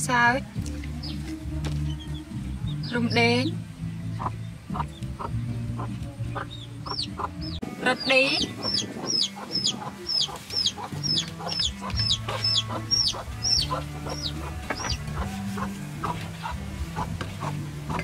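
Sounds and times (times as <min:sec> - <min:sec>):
chickens clucking: 0:04.0 - 0:18.0.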